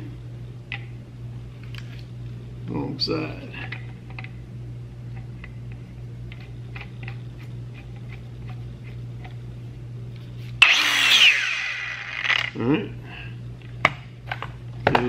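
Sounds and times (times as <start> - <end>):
steady low hum: 0.0 - 15.0
loud noise with falling pitch: 10.6 - 12.5.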